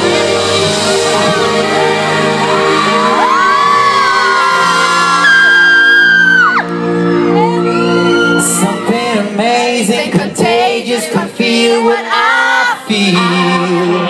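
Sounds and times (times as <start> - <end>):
live pop music: 0.0 - 14.0
crowd whooping and cheering: 0.2 - 9.5
person singing: 7.2 - 14.0.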